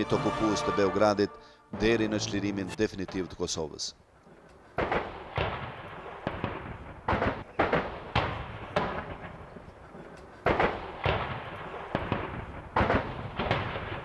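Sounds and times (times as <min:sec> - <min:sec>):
gunshots with echo: 0:04.6 - 0:09.7, 0:10.4 - 0:14.0.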